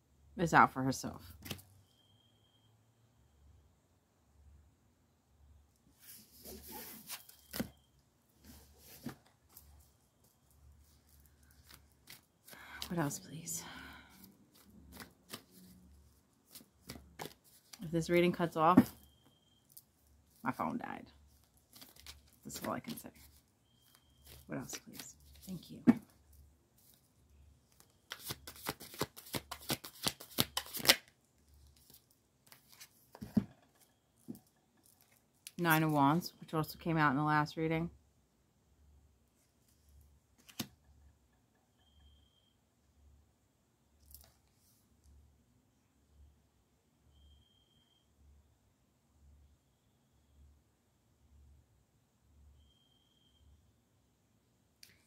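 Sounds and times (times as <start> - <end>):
cards shuffling and sliding: 6.0 - 7.8, 10.9 - 12.9, 14.5 - 15.8, 16.4 - 17.8, 21.7 - 23.4, 27.8 - 31.1, 31.7 - 33.4, 40.4 - 40.7.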